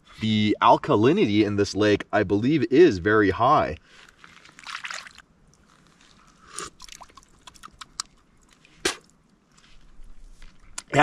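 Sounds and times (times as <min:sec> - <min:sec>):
wet mouth clicks: 0:06.4 - 0:08.2
lip smacks: 0:06.4 - 0:09.2, 0:10.6 - 0:11.0.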